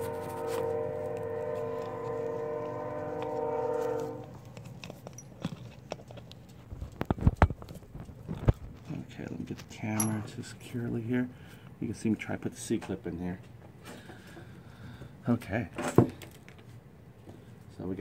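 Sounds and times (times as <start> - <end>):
steady pitched drone: 0.0 - 4.4
metal tools clicking: 9.9 - 10.3.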